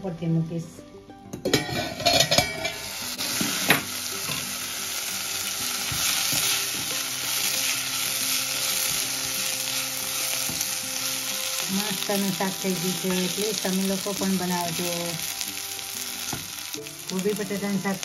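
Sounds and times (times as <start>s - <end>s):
metal lid clinking: 1.4s - 2.9s
curry sizzling in a pot: 1.5s - 18.0s.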